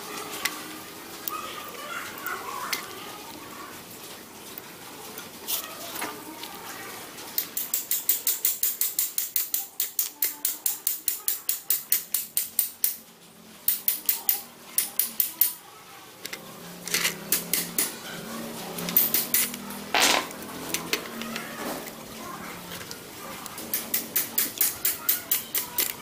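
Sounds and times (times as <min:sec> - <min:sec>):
hammer tapping metal pin: 0:13.7 - 0:15.6.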